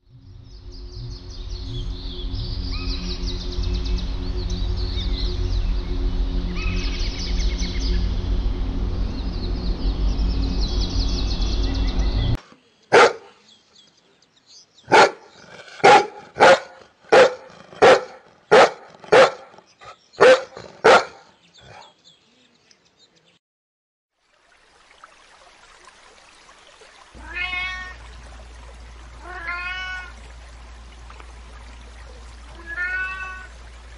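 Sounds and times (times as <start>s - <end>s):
birds chirping: 0.2s - 8.4s, 9.0s - 23.4s, 27.2s - 33.9s
background music: 0.2s - 12.4s
dog barking: 12.9s - 13.4s, 14.9s - 21.9s.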